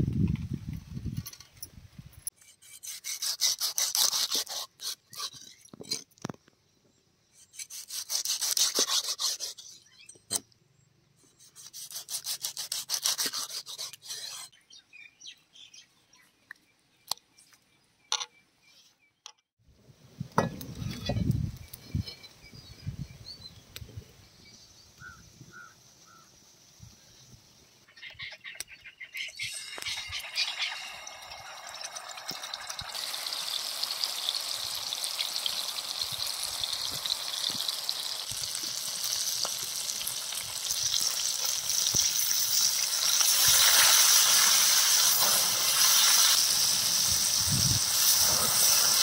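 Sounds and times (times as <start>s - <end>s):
knife scraping fish skin: 2.4s - 5.6s, 7.5s - 9.7s, 11.4s - 14.5s.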